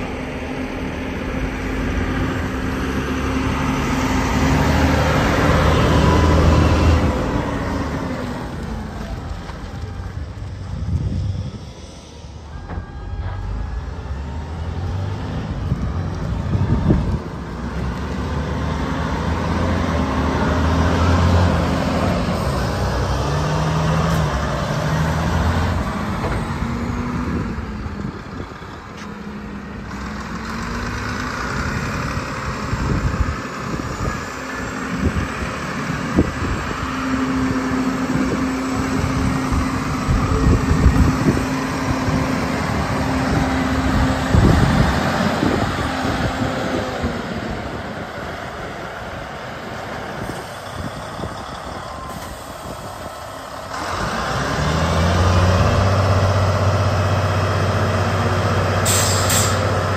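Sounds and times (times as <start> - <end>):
truck diesel engine running: 0.0 - 59.9.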